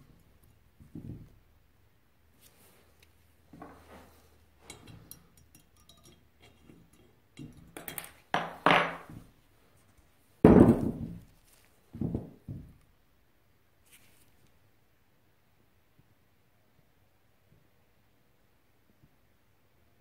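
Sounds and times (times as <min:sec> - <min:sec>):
metal tool clicking and scraping: 0:04.6 - 0:08.2
metal clinks and thunks on workbench: 0:07.4 - 0:09.2.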